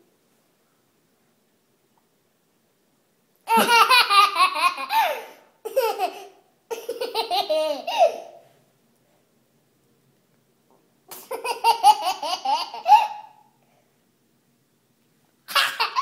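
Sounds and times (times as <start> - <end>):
toddler laughing: 3.5 - 8.4, 11.1 - 13.4, 15.5 - 16.0.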